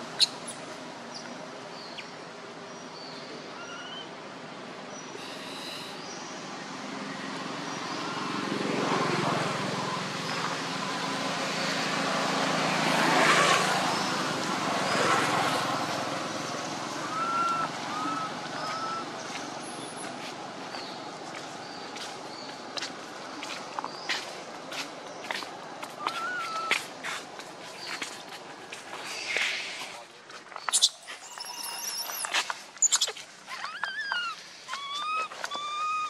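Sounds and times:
vehicle passing by: 6.4s - 29.9s.

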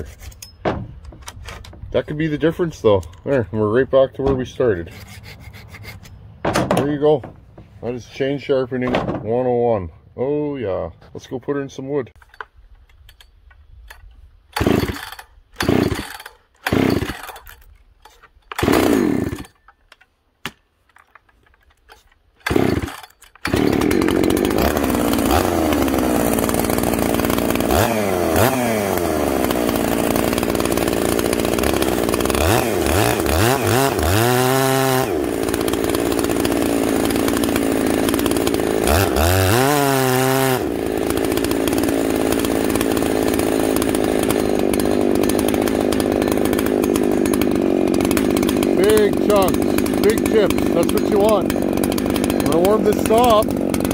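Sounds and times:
chainsaw cutting log: 4.2s - 7.3s, 13.9s - 19.8s, 20.5s - 53.9s
chainsaw pull-start cord: 13.9s - 20.0s, 20.9s - 53.9s
chainsaw engine revving: 14.5s - 19.6s, 22.4s - 53.9s.

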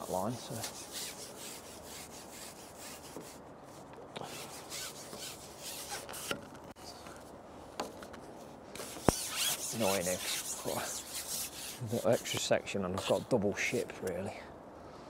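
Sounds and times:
fishing pole rubbing on rest: 0.0s - 6.4s, 8.8s - 13.3s.

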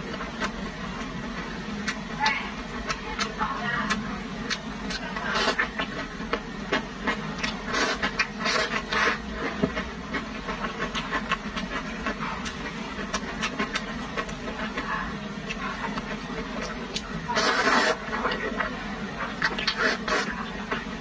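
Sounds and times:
chewing: 1.8s - 20.9s
noodles slurped: 7.1s - 14.8s, 15.9s - 18.7s, 19.3s - 20.8s.

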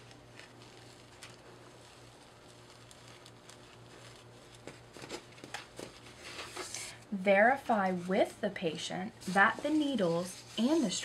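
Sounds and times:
gauze and velcro rustling: 0.0s - 6.8s
low steady hum: 0.0s - 11.0s.

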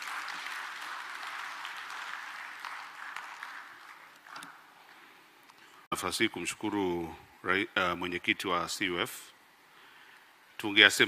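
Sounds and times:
audience applauding: 0.0s - 5.1s.

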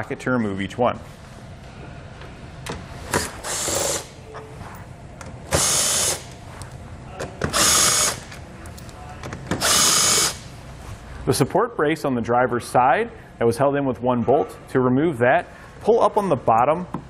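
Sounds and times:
impact driver bursts: 3.1s - 4.2s, 5.5s - 6.4s, 7.4s - 8.3s, 9.5s - 10.5s.

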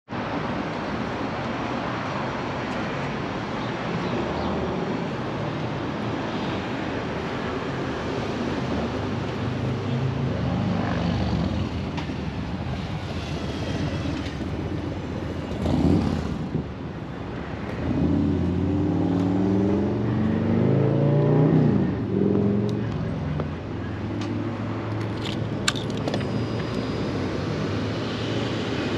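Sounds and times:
road traffic passing: 0.1s - 28.9s
vehicle accelerating past: 17.8s - 22.8s.

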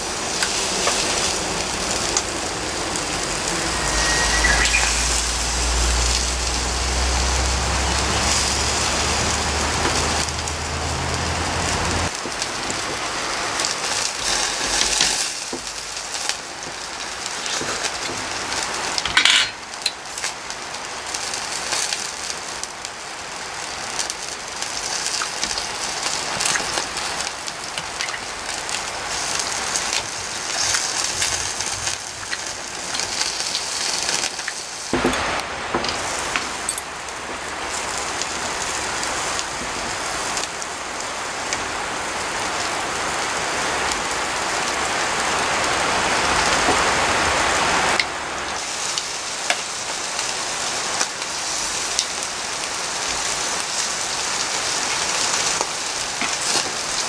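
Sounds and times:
skewers sizzling on a grill: 0.0s - 57.0s
low rumble: 1.4s - 8.0s.

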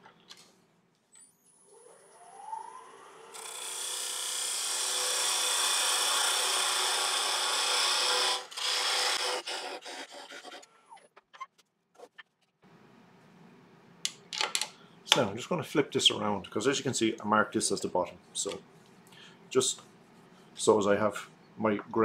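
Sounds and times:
wood lathe whine: 1.6s - 10.6s
tool scraping spinning wood: 6.1s - 11.1s.

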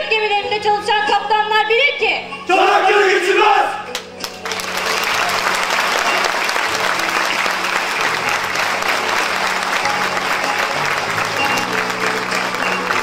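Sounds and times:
audience applauding: 3.9s - 13.0s.

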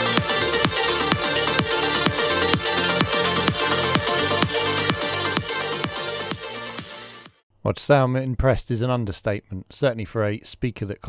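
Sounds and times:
electronic dance music from speaker: 0.0s - 7.3s.

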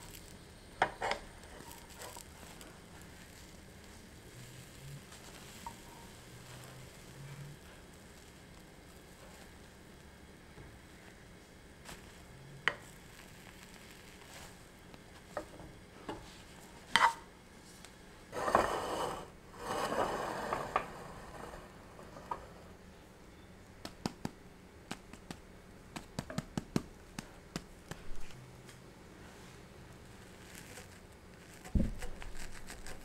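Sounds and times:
spatulas scraping a frying pan: 0.8s - 2.6s, 5.2s - 7.8s, 16.2s - 17.3s, 18.3s - 22.7s.

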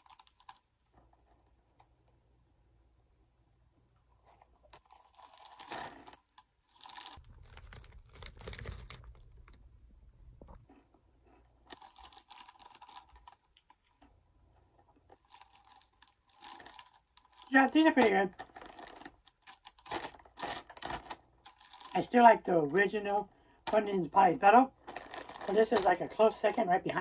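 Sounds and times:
plastic bag crinkling: 0.0s - 1.4s, 4.2s - 10.7s, 11.6s - 14.0s, 14.8s - 22.5s, 24.7s - 26.6s
snacks crunching: 4.8s - 10.8s.

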